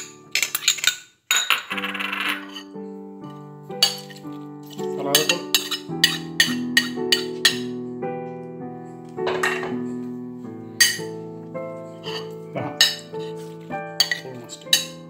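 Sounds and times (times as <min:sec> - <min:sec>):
background music chords: 0:02.4 - 0:15.0
metal spoon clinking on glass bowl: 0:03.8 - 0:07.7, 0:10.8 - 0:11.1, 0:12.0 - 0:13.2, 0:14.0 - 0:15.0
spoon tapping china plate: 0:03.8 - 0:07.7, 0:10.8 - 0:11.1, 0:12.1 - 0:13.1, 0:14.0 - 0:15.0.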